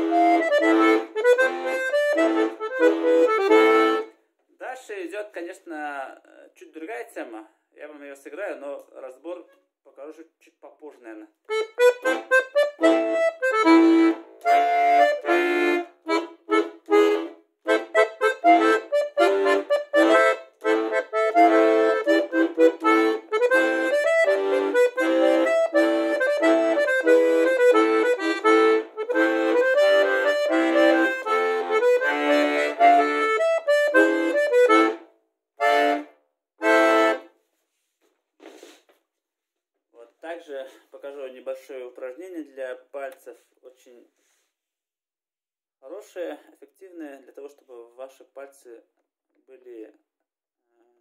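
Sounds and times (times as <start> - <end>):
button accordion playing melody: 0.0 - 4.2, 11.5 - 37.4.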